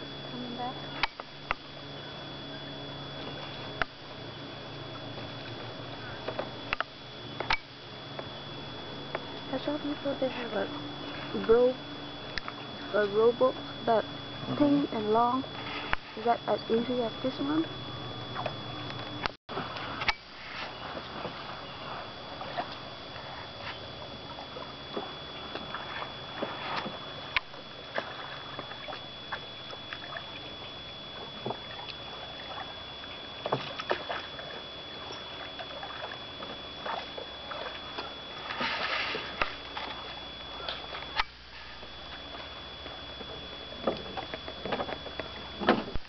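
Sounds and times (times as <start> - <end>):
oars pulling through water: 0.0 - 46.0
soft splashes and clicks: 5.0 - 8.3, 12.3 - 12.8, 22.4 - 41.4.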